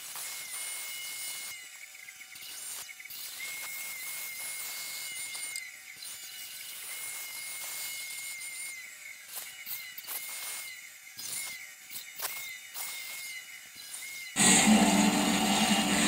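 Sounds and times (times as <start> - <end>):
bandsaw blade hissing through plastic: 0.0 - 1.6, 2.3 - 16.0
thin high whine: 14.4 - 16.0.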